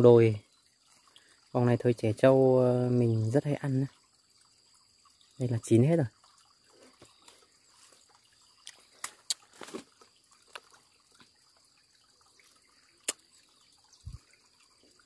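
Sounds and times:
leaves rustling: 6.8 - 10.9.

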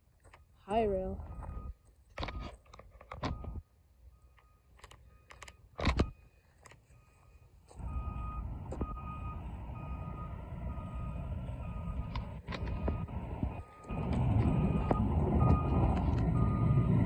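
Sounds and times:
truck backup alarm beeping: 0.4 - 2.5, 3.2 - 17.0
steady low rumble: 7.8 - 17.0.

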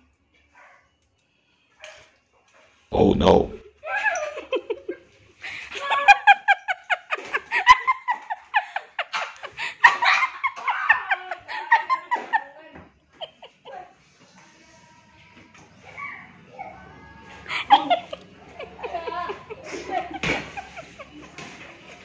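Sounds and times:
high-pitched hearty laughter: 3.8 - 14.0, 17.3 - 21.4.

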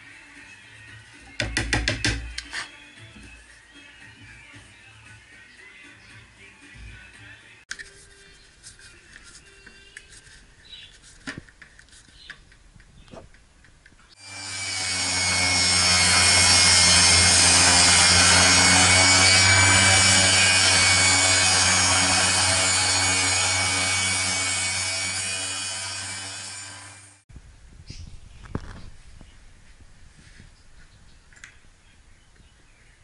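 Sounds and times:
table saw running: 14.2 - 27.2.

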